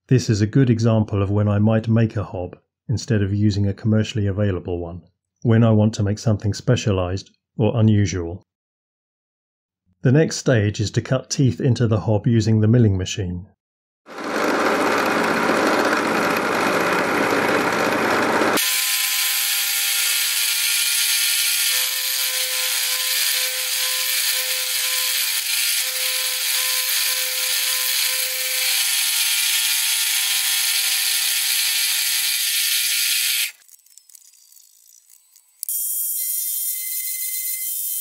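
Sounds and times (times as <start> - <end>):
milling machine cutting metal: 14.1 - 33.6.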